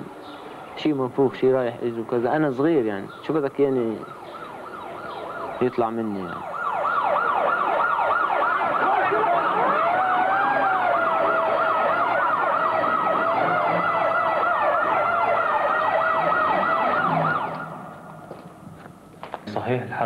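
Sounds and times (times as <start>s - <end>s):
siren yelping fast: 4.0s - 18.0s
slower wavering siren: 4.0s - 18.3s.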